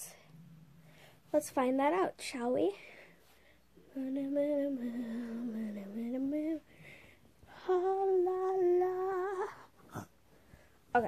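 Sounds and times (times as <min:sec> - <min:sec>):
girl singing wordless notes: 0:01.3 - 0:03.0, 0:03.6 - 0:10.2.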